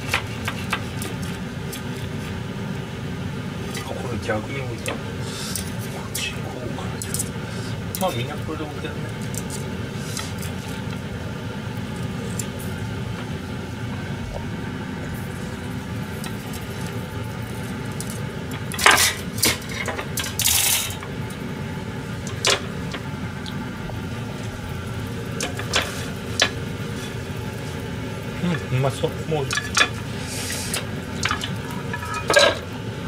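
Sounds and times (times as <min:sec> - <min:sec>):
low kitchen hum: 0:00.0 - 0:33.0
knife clinking on board and rack: 0:31.2 - 0:32.6.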